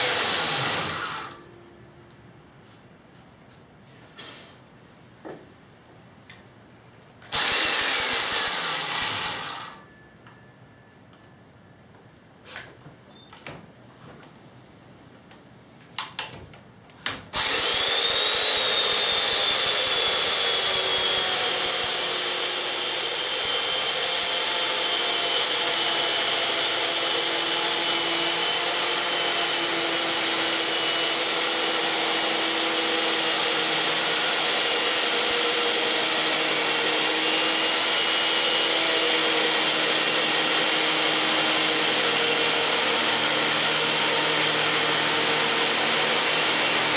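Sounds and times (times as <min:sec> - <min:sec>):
mortiser motor cutting wood: 0:00.0 - 0:01.4, 0:07.3 - 0:09.8, 0:17.4 - 0:46.9.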